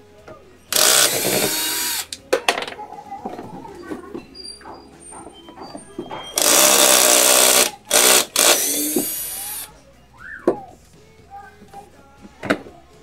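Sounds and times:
electric drill whining: 0:00.7 - 0:02.2, 0:06.4 - 0:09.7.

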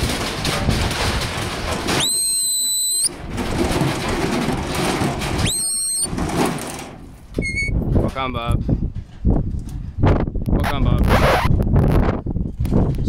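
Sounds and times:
wind noise on microphone: 0:00.0 - 0:13.0
shepherd's high whistle: 0:02.0 - 0:03.1, 0:05.4 - 0:06.1, 0:07.4 - 0:07.7.

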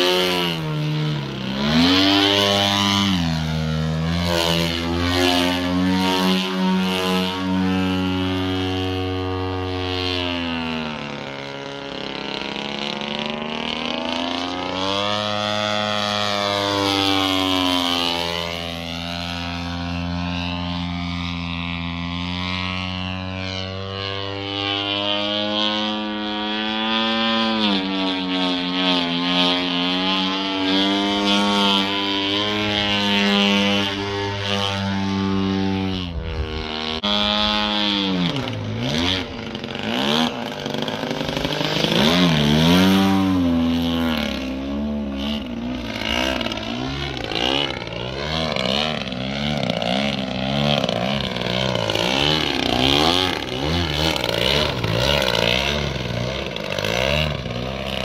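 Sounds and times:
model plane engine and propeller: 0:00.0 - 0:58.0.

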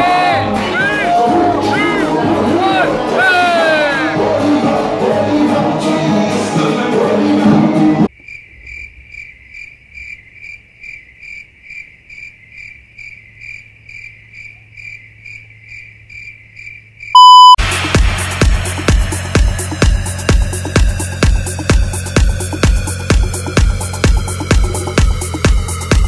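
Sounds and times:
music: 0:00.0 - 0:08.1, 0:17.6 - 0:26.0
crickets chirping: 0:08.1 - 0:17.2
loud beep tone: 0:17.2 - 0:17.6
house music with kick drum: 0:17.6 - 0:26.0.

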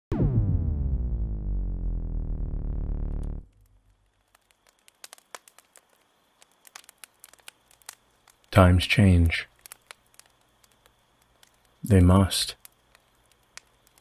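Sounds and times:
low synthesizer tone: 0:00.1 - 0:03.5
wood fire crackling: 0:03.1 - 0:14.0.

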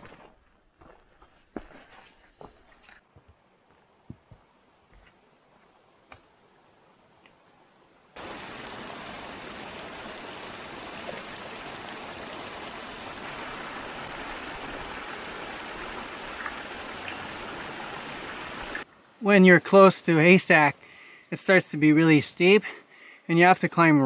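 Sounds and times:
stream cascading over rocks: 0:08.2 - 0:20.7.

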